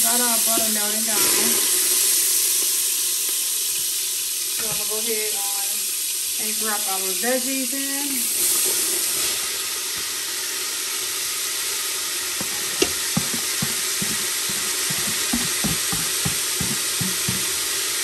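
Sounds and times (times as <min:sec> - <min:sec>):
vegetables sizzling in butter: 0:00.0 - 0:18.0
spoon scraping a pot: 0:12.4 - 0:17.6.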